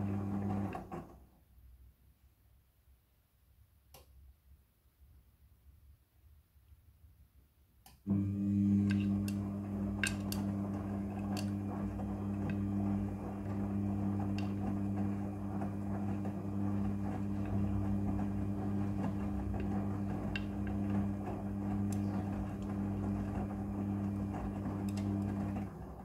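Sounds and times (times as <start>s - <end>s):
washing machine motor humming: 0.0s - 1.2s, 8.1s - 26.0s.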